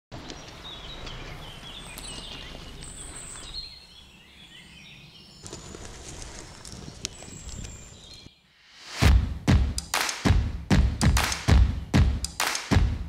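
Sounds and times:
birds chirping: 0.1s - 8.7s, 11.3s - 12.4s.

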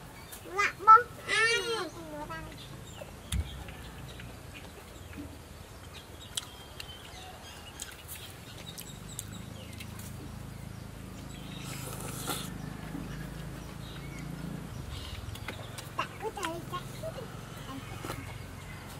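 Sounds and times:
person chewing: 6.3s - 7.2s, 7.8s - 10.1s, 11.6s - 12.6s.

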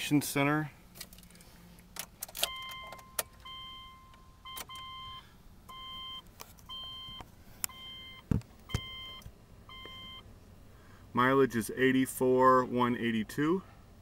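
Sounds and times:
dashboard warning chime beeping: 2.4s - 10.3s.

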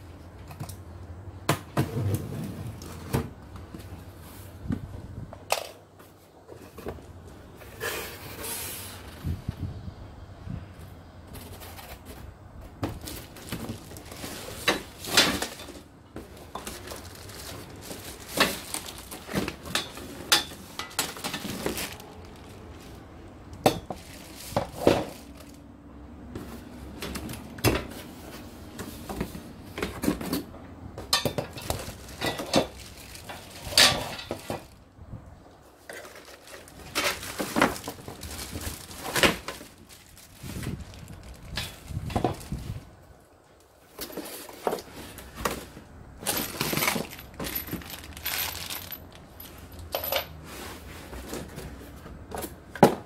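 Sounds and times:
cardboard rustling and scraping: 1.7s - 5.2s, 6.0s - 9.7s, 10.8s - 23.2s, 23.8s - 25.6s, 26.3s - 34.8s, 35.7s - 43.0s, 43.9s - 49.7s, 50.4s - 53.0s
plastic wrap crinkling: 12.9s - 23.0s, 31.6s - 33.8s, 35.9s - 42.8s, 46.3s - 49.2s.

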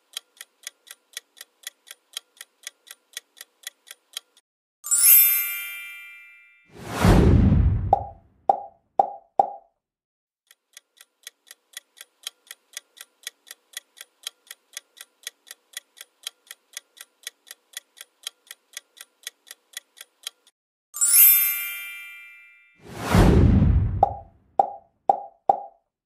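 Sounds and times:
clock ticks: 0.0s - 4.4s, 10.4s - 20.6s
bright ringing chime: 4.9s - 6.7s, 21.0s - 22.8s.

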